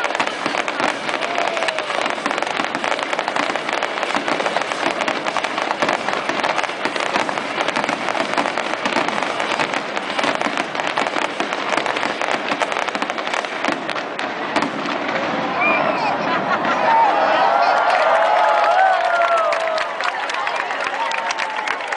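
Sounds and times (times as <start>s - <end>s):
fireworks bursting and crackling: 0.0s - 16.8s.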